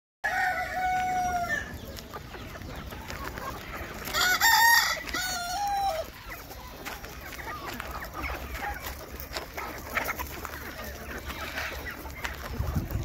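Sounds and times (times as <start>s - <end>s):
roosters crowing: 0.2s - 2.1s, 2.8s - 9.0s
chickens clucking: 0.2s - 13.0s.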